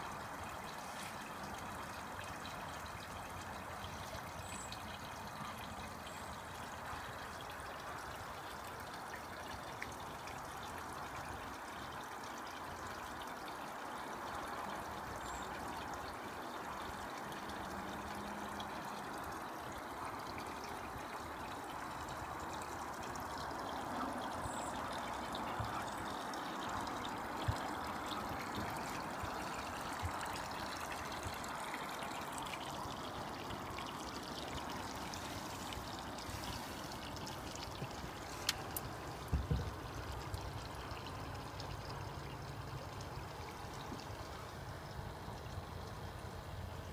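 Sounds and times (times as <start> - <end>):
water pouring into pond: 0.0 - 46.9
small knocks: 38.4 - 39.8.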